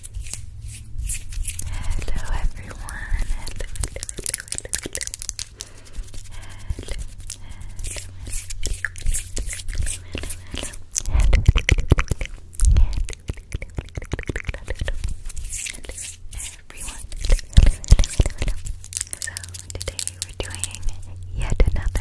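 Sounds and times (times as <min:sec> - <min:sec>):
fingernails scratching microphone grille: 0:05.6 - 0:10.8.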